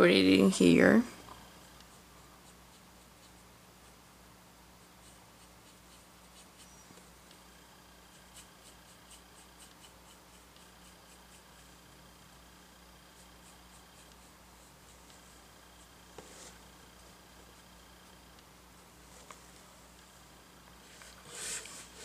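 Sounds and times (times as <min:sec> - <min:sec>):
low steady hum: 0:00.0 - 0:22.0
paintbrush scratching: 0:01.7 - 0:04.0, 0:04.8 - 0:18.1, 0:20.8 - 0:22.0.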